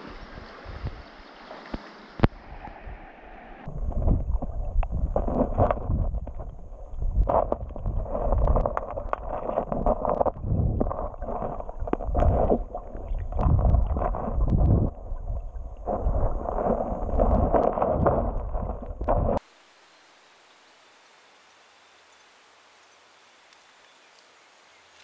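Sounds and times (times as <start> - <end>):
muffled underwater river rushing: 0.0 - 19.6
faint steady hiss: 19.4 - 25.0.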